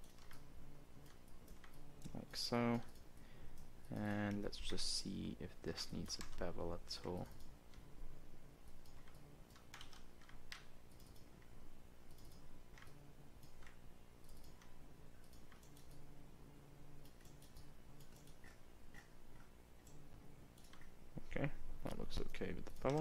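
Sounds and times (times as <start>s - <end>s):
mouse and keyboard clicks: 0.0s - 0.4s, 12.1s - 16.0s
low steady hum: 0.0s - 23.0s.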